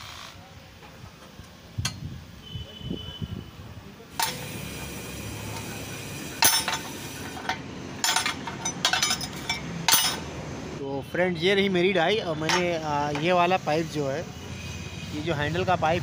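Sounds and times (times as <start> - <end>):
steel rings clinking: 6.4 - 10.3
metallic knocks: 12.4 - 13.4.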